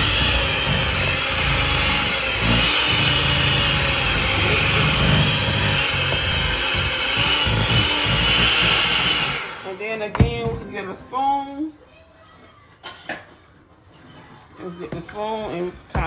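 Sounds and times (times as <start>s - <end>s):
electric hand mixer whine: 0.0s - 9.9s.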